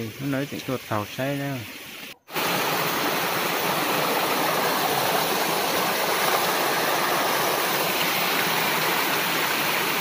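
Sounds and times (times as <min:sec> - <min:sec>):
water rushing over rocks: 0:02.3 - 0:10.0.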